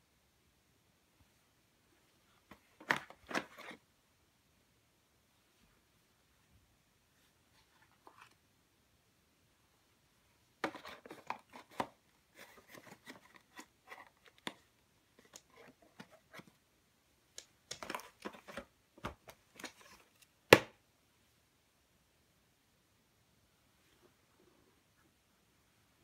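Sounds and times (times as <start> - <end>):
light taps and scrapes of toys: 10.6 - 16.6.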